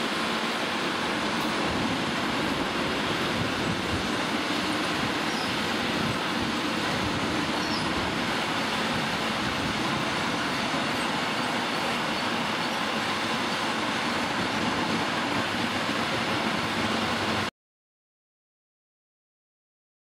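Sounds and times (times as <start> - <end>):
freight train rumbling past: 0.0 - 17.5.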